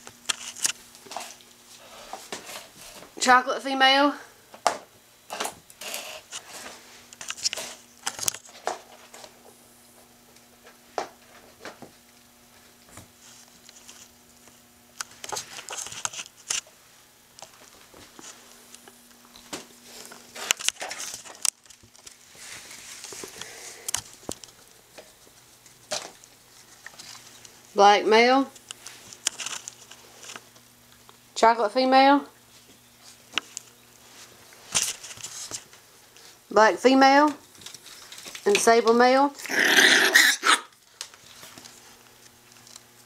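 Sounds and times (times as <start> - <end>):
faint steady hum: 0.0 - 43.0.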